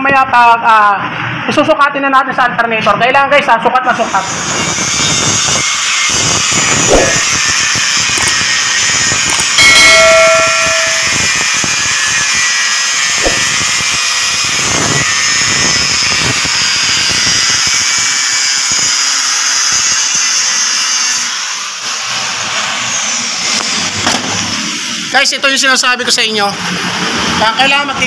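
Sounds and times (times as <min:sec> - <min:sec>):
angle grinder cutting metal: 0:03.9 - 0:24.0.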